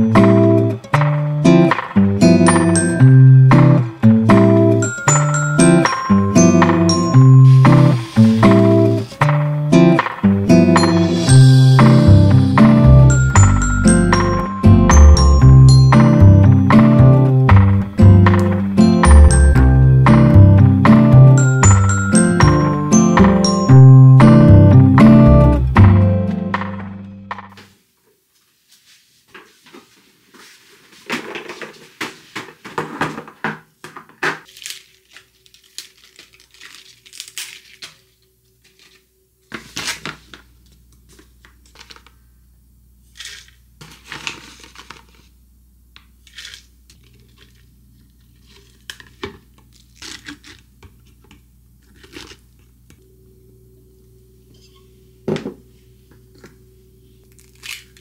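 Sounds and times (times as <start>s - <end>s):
packaging bag crinkling: 34.5s - 39.0s
low steady hum: 45.3s - 58.0s.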